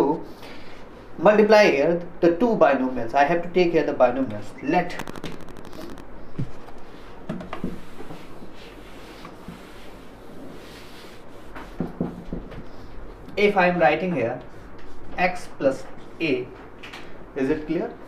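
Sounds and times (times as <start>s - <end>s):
cloth rubbing on whiteboard: 5.4s - 12.4s.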